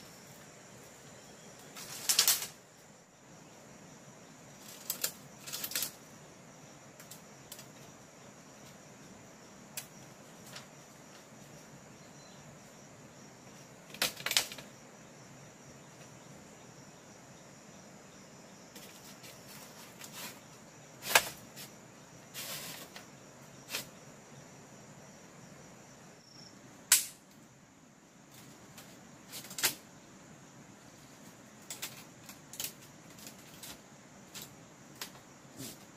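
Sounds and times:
insects droning: 0.0 - 35.9
bamboo knocking and rattling: 1.6 - 2.6, 4.6 - 6.0, 9.8 - 11.3, 13.8 - 14.7, 18.7 - 21.8, 28.3 - 29.8, 31.3 - 35.9.

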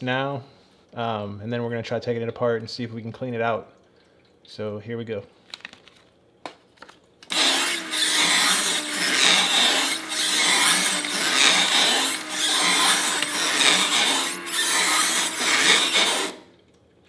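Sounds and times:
paper shredder grinding: 7.3 - 16.5.

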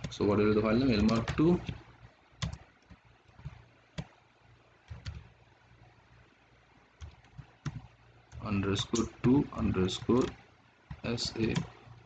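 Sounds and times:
faint low hum: 0.0 - 12.0
keyboard keystrokes: 0.8 - 1.8, 2.4 - 4.2, 4.8 - 5.3, 7.0 - 9.2, 9.9 - 11.8.

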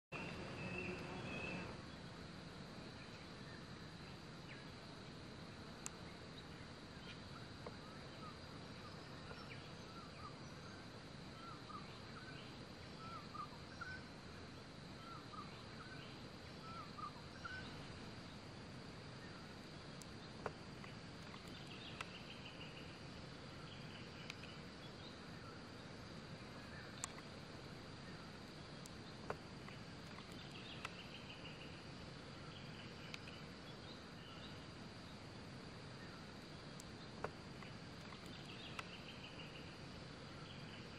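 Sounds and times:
small birds chirping: 0.1 - 40.9
steady high hum: 0.1 - 40.9
faint clicks: 5.8 - 6.0, 19.9 - 22.4, 24.1 - 24.6, 26.9 - 27.3, 28.8 - 31.2, 32.9 - 33.5, 36.7 - 39.2.

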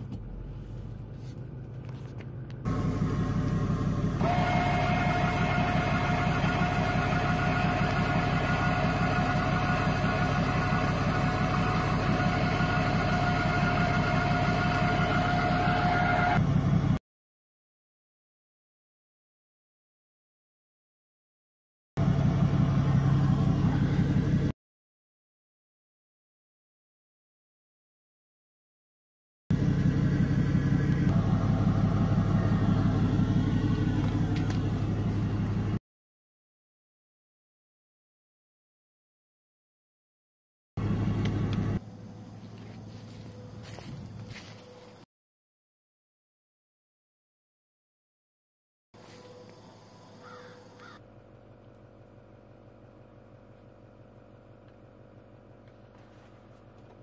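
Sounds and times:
truck engine idling: 0.0 - 17.0, 22.0 - 24.6, 29.5 - 35.8, 40.8 - 45.1, 49.0 - 57.0
steady whine: 0.3 - 17.0.

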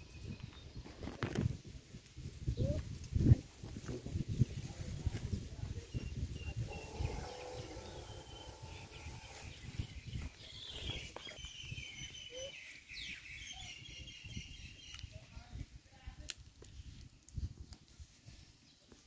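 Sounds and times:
small birds chirping: 4.2 - 15.7
low uneven rumble: 4.7 - 11.1.

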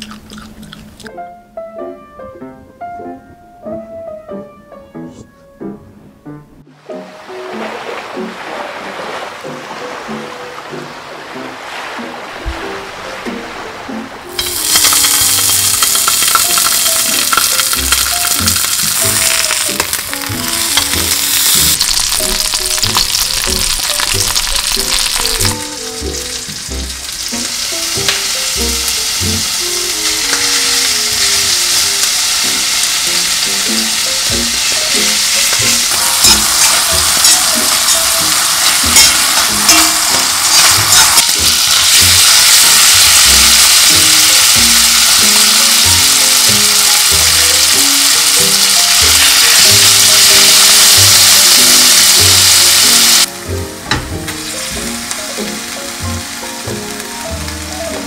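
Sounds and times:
food frying in oil: 14.3 - 53.3, 54.2 - 58.0.

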